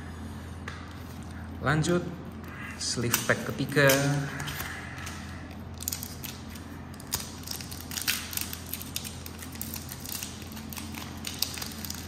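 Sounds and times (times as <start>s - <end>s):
plastic wrapper crackling and tearing: 3.1s - 12.0s.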